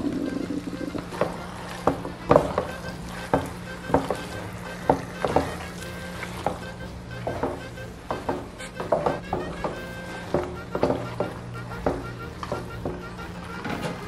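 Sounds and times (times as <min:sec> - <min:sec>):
spoon knocking against pan: 0:07.2 - 0:13.0.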